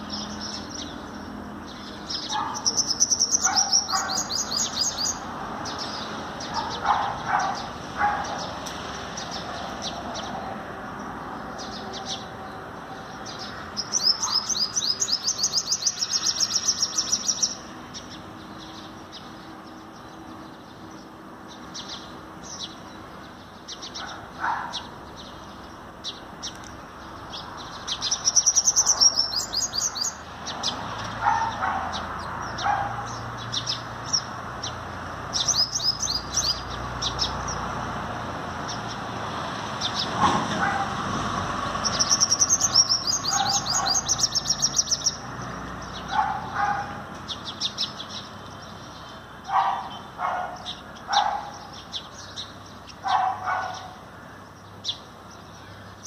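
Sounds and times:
sharp bird chirps: 0:00.0 - 0:08.6, 0:13.3 - 0:19.3, 0:27.4 - 0:31.7, 0:35.4 - 0:37.6, 0:41.8 - 0:45.3
bird trilling: 0:01.8 - 0:08.5, 0:13.4 - 0:17.6, 0:27.7 - 0:30.2, 0:41.8 - 0:45.2.

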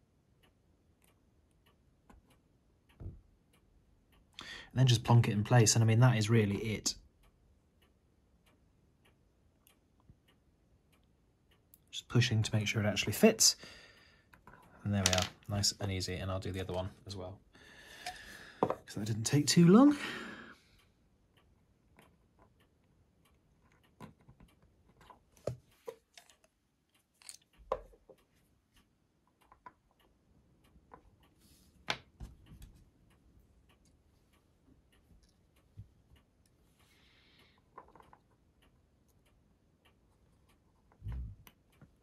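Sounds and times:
small model parts clicking: 0:14.3 - 0:15.5.

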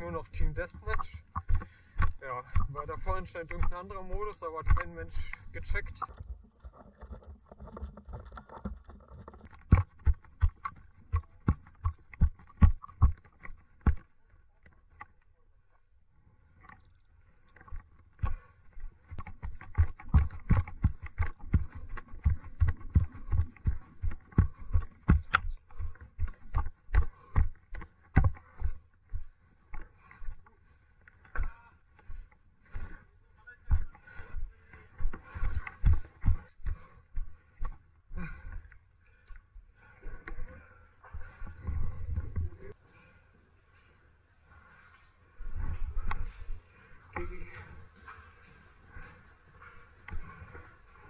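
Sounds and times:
footsteps thumping: 0:00.4 - 0:14.0.

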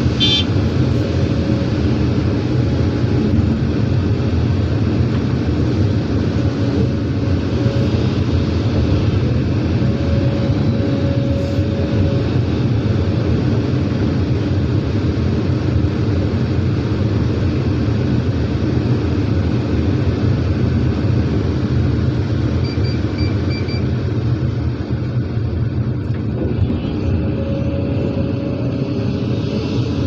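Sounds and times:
heavy diesel engines running: 0:00.0 - 0:30.0
high warning beeps: 0:22.6 - 0:23.9.

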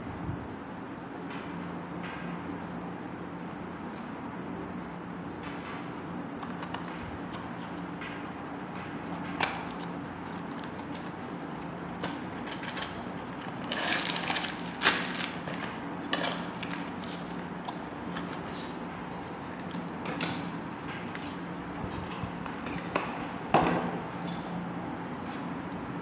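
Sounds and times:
steady low hum: 0:00.0 - 0:26.0
cardboard packaging rustling: 0:05.6 - 0:08.0, 0:09.0 - 0:22.9.

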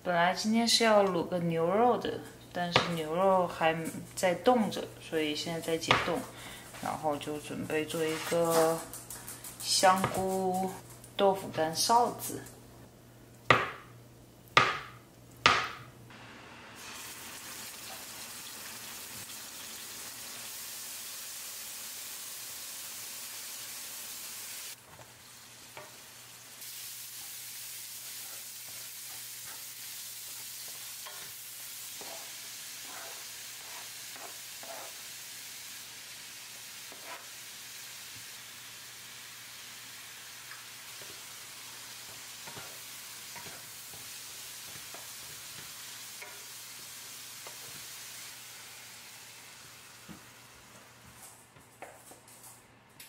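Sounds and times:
sauce sizzling in a pan: 0:16.1 - 0:51.2
spatula stirring: 0:27.1 - 0:35.1, 0:36.9 - 0:37.3, 0:41.0 - 0:46.5.

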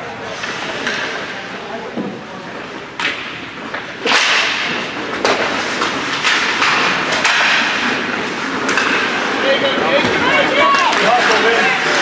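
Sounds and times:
hockey stick clacks: 0:00.4 - 0:01.3, 0:02.9 - 0:09.4
skate blades scraping ice: 0:02.6 - 0:12.0.

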